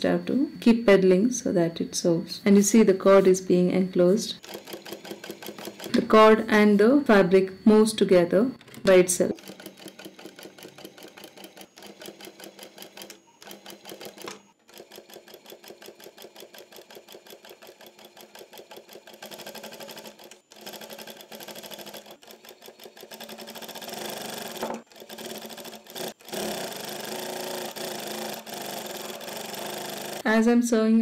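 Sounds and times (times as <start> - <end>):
sewing machine stitching: 4.4 - 6.3, 8.6 - 30.2.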